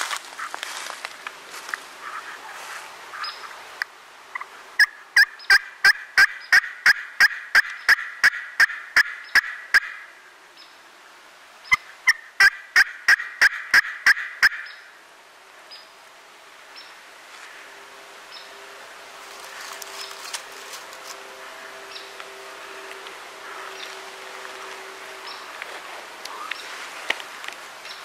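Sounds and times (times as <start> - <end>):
turkey yelping: 4.4 - 10.1, 11.7 - 14.8.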